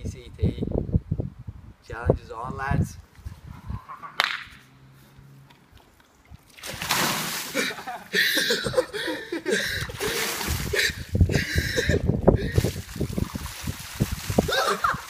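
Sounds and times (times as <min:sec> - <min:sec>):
water pouring: 0:06.2 - 0:08.0, 0:09.8 - 0:11.0, 0:12.4 - 0:15.0
water splashing: 0:06.2 - 0:08.2, 0:09.7 - 0:11.1, 0:12.4 - 0:15.0.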